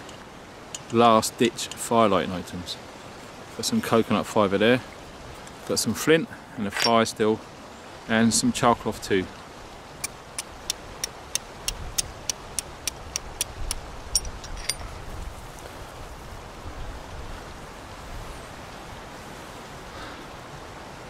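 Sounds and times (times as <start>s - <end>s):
flint striking steel clicks: 0.0s - 1.0s, 10.0s - 14.8s
steady background hiss: 0.0s - 21.0s.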